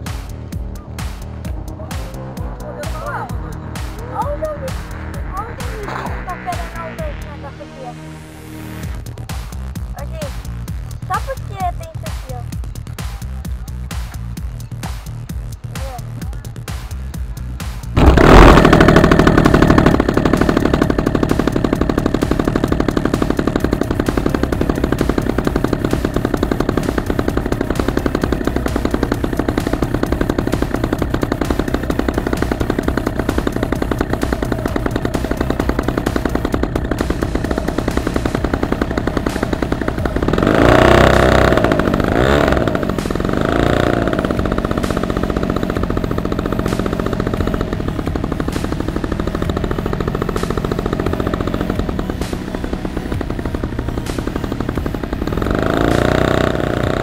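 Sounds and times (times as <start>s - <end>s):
engine revving: 0.0s - 57.0s
model airplane engine running: 18.0s - 57.0s.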